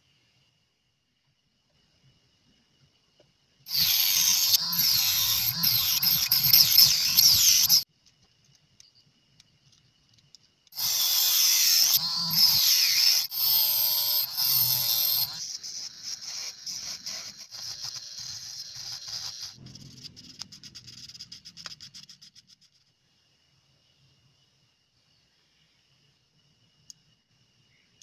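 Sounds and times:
rotary tool cutting wood: 3.7s - 7.8s, 10.7s - 19.6s.

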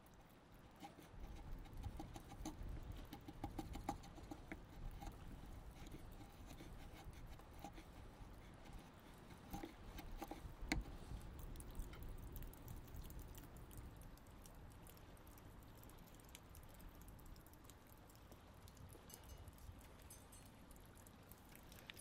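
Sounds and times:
chisel scraping wood: 0.8s - 11.1s.

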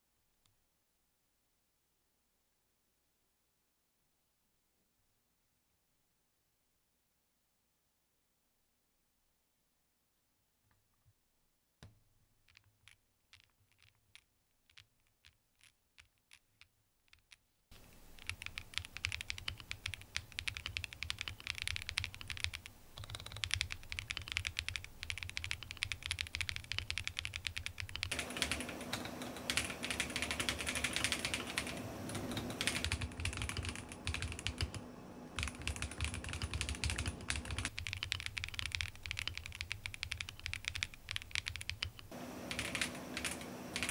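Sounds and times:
mechanical keyboard typing: 17.7s - 43.9s.

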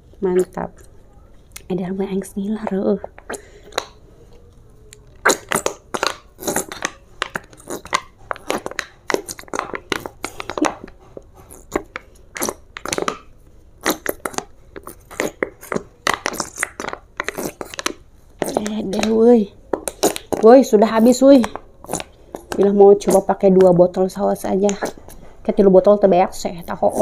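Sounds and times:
squeeze bottle sputtering: 5.1s - 19.1s.

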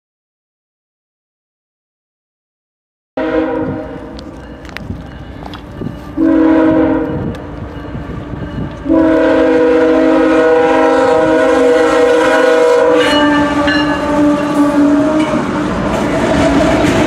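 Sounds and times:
locomotive air horn chord: 3.2s - 4.2s, 6.2s - 7.3s, 8.8s - 15.8s
wheels clattering on rails: 4.0s - 6.2s, 13.0s - 17.0s.

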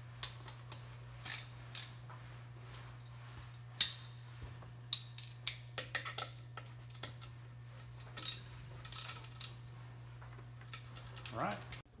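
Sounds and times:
bolts clinking on metal plate: 4.9s - 7.4s, 8.1s - 9.6s.

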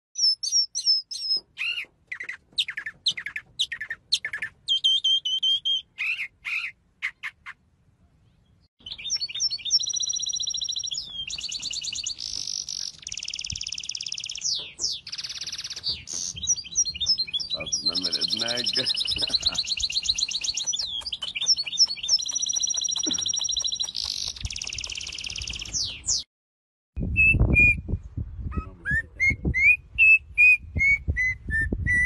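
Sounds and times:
mockingbird singing: 0.2s - 7.6s, 8.3s - 26.2s.

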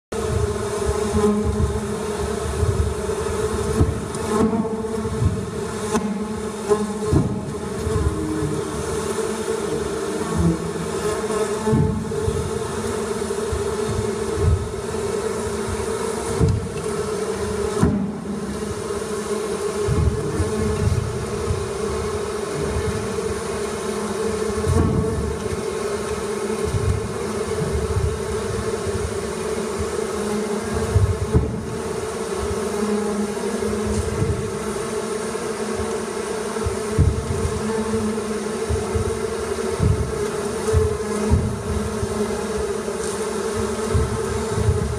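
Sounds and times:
bee swarm buzzing: 0.1s - 44.9s
dull low thuds: 24.6s - 25.4s, 36.6s - 42.2s.

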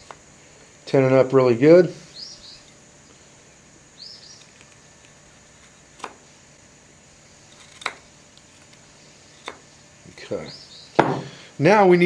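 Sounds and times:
bird chirp: 2.0s - 3.2s, 3.9s - 5.0s, 10.3s - 11.4s
knife cutting wood clicks: 7.6s - 8.0s.

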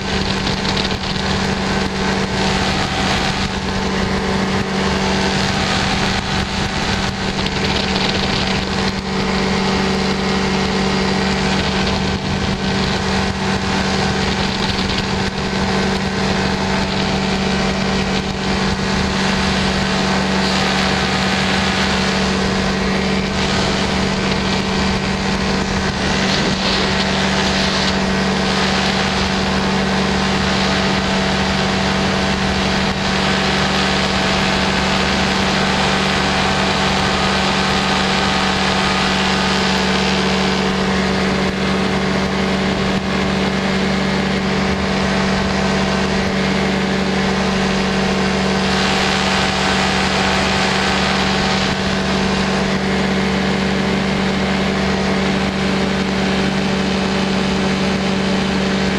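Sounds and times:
small aircraft engine droning: 0.0s - 58.9s
wind rushing past microphone: 0.0s - 58.9s.

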